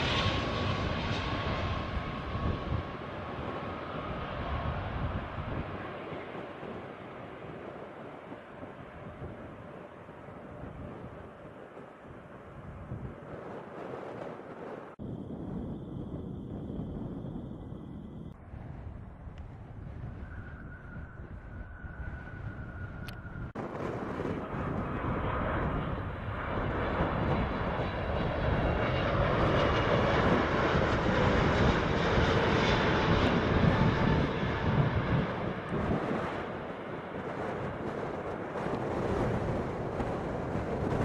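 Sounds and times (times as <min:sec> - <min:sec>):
jet engine rushing and whining: 0:00.0 - 0:41.0.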